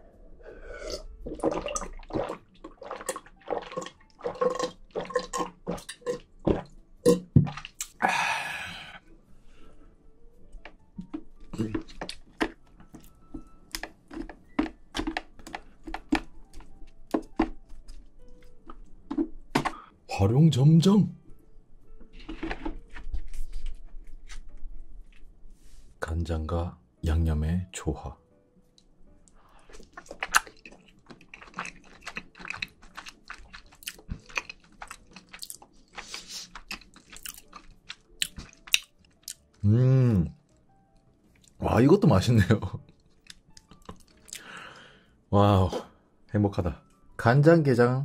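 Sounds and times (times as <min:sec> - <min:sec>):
wet chewing mouth clicks: 0:29.7 - 0:39.4.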